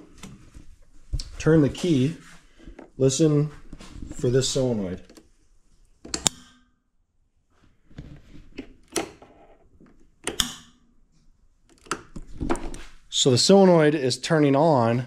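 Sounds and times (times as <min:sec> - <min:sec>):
solenoid valve clicking: 0:06.1 - 0:06.7, 0:10.2 - 0:10.8.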